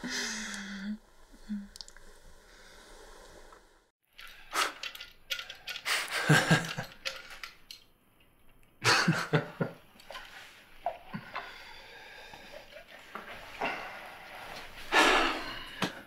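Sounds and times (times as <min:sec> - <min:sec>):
men laughing: 0:05.9 - 0:07.0, 0:08.8 - 0:09.8.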